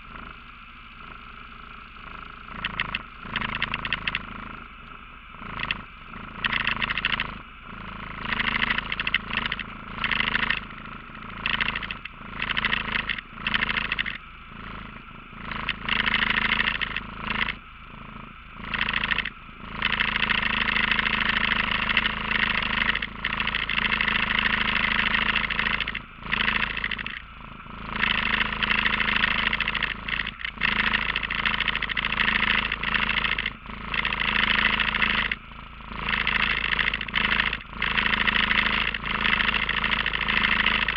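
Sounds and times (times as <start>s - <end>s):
atv engine idling: 0.0s - 40.9s.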